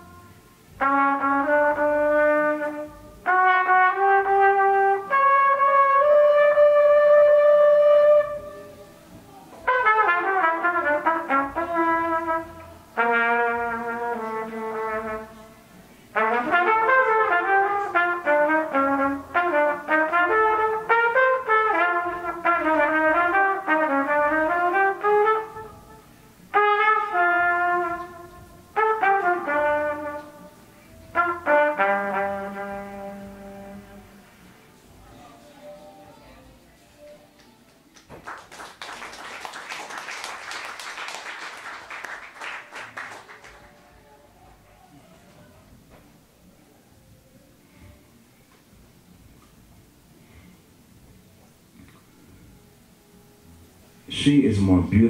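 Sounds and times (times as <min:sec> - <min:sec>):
trumpet melody: 0:00.0 - 0:09.0, 0:09.6 - 0:37.2.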